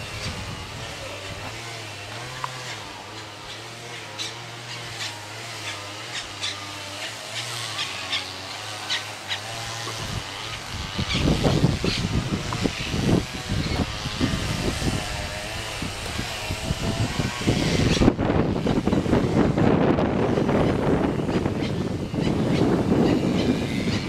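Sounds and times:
low rumbling on microphone: 0:00.0 - 0:03.4, 0:09.6 - 0:24.0
birds chirping: 0:00.0 - 0:24.0.

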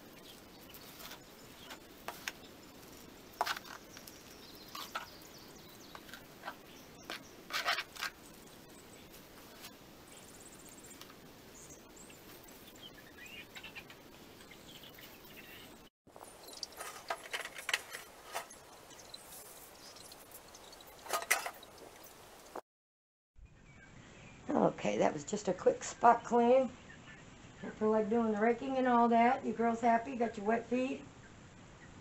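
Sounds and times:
plastic scoop scraping sand: 0:05.9 - 0:08.3
faint bird chirps: 0:08.2 - 0:16.9, 0:18.4 - 0:21.0.

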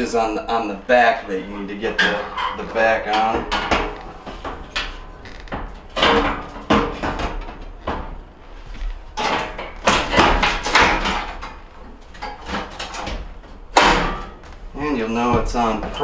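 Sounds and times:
metal panel clanks and knocks: 0:01.8 - 0:14.5.

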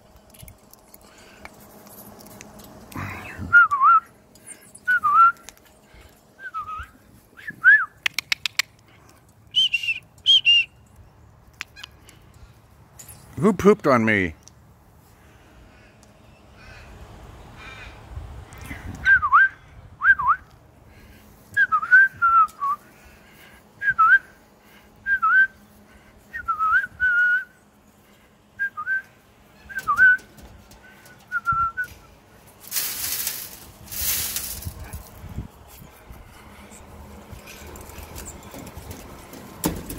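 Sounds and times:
short whistled notes: 0:09.6 - 0:10.8.

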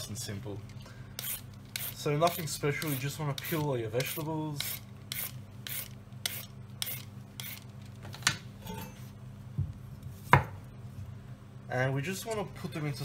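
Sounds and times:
peeler scraping a carrot: 0:01.2 - 0:07.6.

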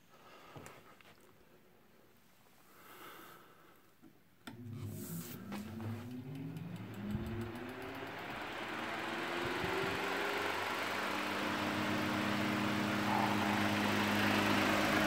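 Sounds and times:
fan motor humming: 0:04.5 - 0:15.0
rush of air: 0:12.9 - 0:14.8.

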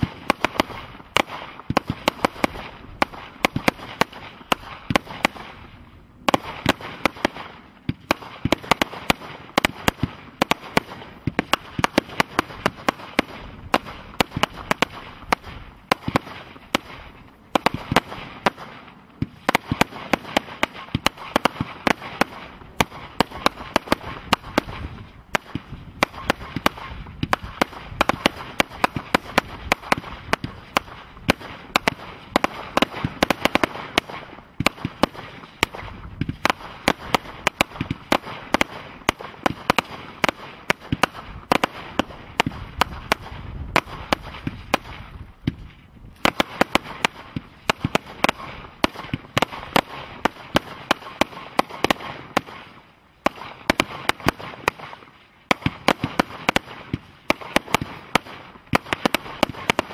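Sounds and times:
firework cake bangs and pops: 0:00.0 - 0:59.9.

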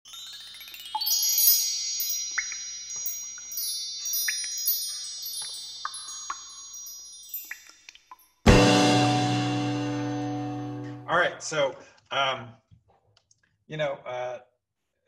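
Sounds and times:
shimmering high chime tones: 0:00.0 - 0:11.1.

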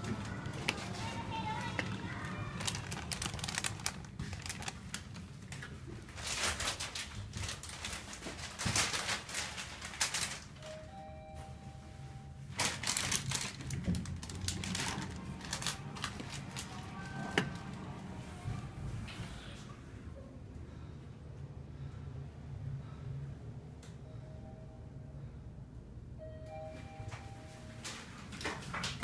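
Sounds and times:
elevator car clattering: 0:00.0 - 0:05.3, 0:12.6 - 0:19.2
two-note arrival chime: 0:10.6 - 0:12.4, 0:26.2 - 0:27.8.

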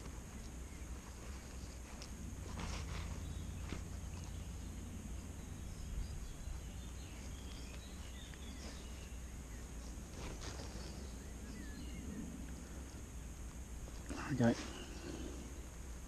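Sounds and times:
soft rustles: 0:00.0 - 0:16.0
steady low rumble: 0:00.0 - 0:16.0
faint bird chirps: 0:02.6 - 0:13.0, 0:14.0 - 0:15.8.

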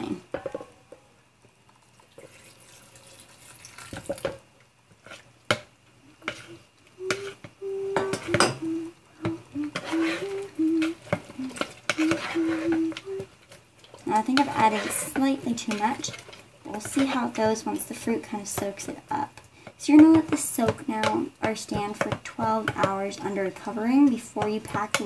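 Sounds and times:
spoon stirring in plastic tub: 0:06.2 - 0:19.2
short low tones: 0:06.4 - 0:13.2.

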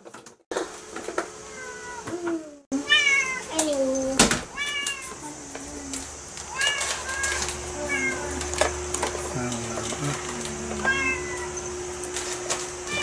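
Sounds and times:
cat meowing: 0:01.4 - 0:02.1, 0:02.8 - 0:03.5, 0:04.5 - 0:08.4, 0:10.1 - 0:11.6.

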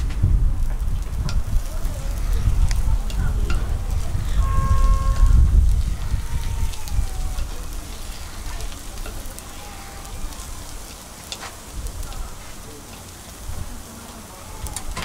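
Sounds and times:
low rumble: 0:00.0 - 0:09.4
batter sizzling in hot molds: 0:00.0 - 0:15.0
faint crackles: 0:00.0 - 0:15.0.

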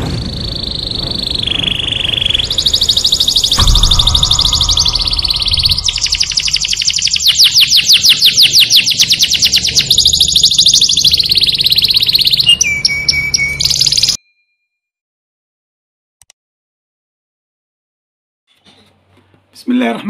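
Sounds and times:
songbird trilling: 0:00.7 - 0:14.2.

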